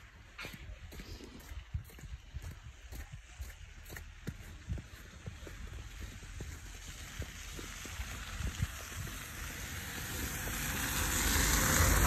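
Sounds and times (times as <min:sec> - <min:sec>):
footsteps in snow: 0:00.1 - 0:09.5
vehicle tyre hiss: 0:05.1 - 0:12.0.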